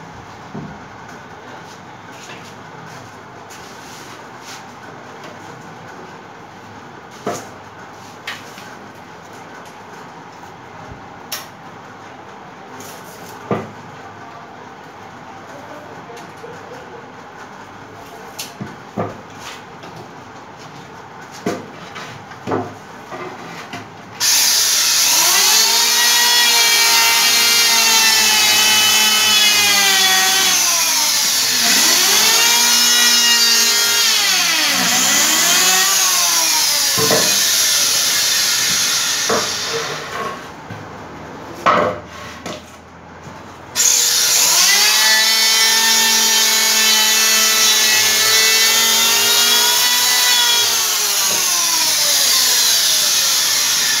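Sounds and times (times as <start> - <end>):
power saw cutting wood: 24.2 - 40.5, 43.8 - 54.0.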